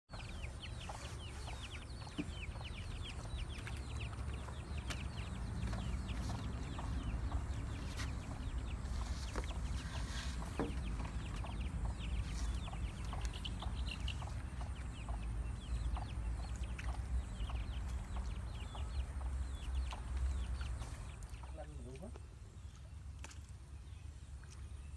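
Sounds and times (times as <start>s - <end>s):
birds chirping chorus: 0.1s - 24.9s
steady low rumble: 1.6s - 21.5s.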